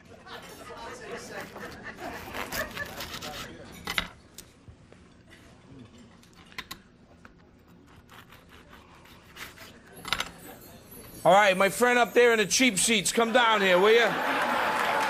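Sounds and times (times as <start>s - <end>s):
utensils and dishes clicking: 9.5s - 11.2s.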